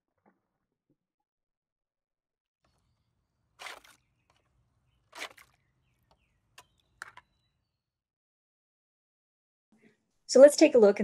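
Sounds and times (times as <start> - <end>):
faint water splashes: 3.6 - 4.4, 5.0 - 7.2.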